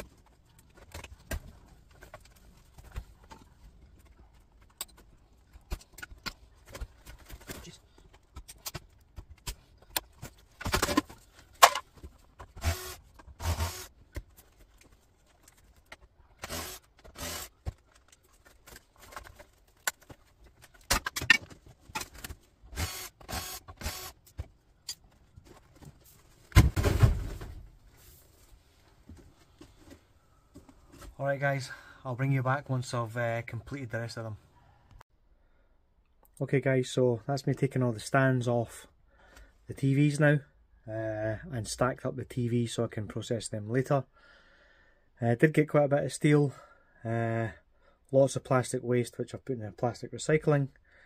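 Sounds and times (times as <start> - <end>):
cordless drill whirring: 12.6 - 13.9, 16.4 - 17.5, 22.8 - 24.2.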